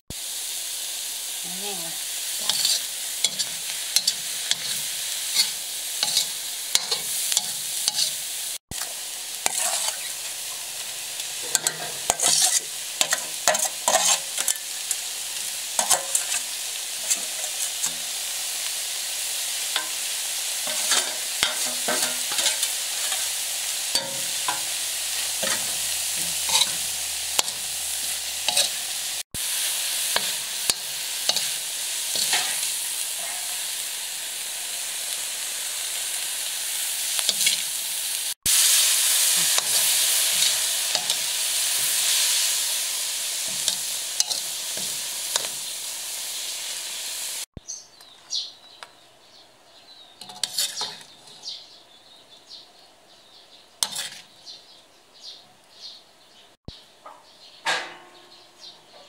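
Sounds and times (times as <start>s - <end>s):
food sizzling in a wok: 0.1s - 47.8s, 50.2s - 51.8s, 53.6s - 54.6s
metal spatula scraping a pan: 2.4s - 8.2s, 8.8s - 10.2s, 11.4s - 14.9s, 15.8s - 18.1s, 19.8s - 33.8s, 37.2s - 37.7s, 38.5s - 42.8s, 43.4s - 45.7s, 50.2s - 51.5s, 53.8s - 54.4s.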